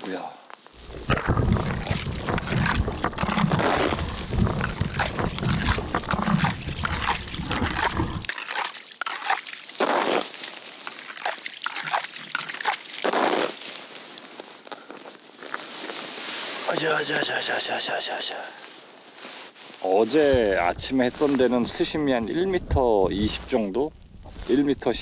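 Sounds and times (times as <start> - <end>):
scattered crunches and clicks: 0.5 - 13.5, 20.2 - 25.0
water sloshing and splashing: 0.8 - 13.8, 20.2 - 25.0
handling knocks: 20.3 - 24.3.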